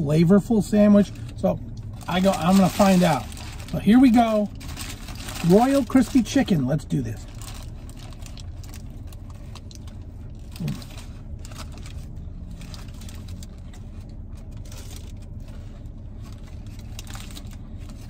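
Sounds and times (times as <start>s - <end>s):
car engine idling: 0.0s - 18.0s
sandwich wrapper rustling: 0.9s - 18.0s
person chewing: 9.2s - 11.4s.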